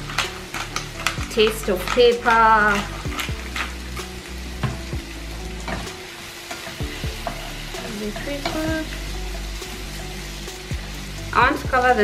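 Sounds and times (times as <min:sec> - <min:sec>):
peppers sizzling in a pan: 0:00.0 - 0:12.0
wooden spatula knocking on pan: 0:04.6 - 0:04.9.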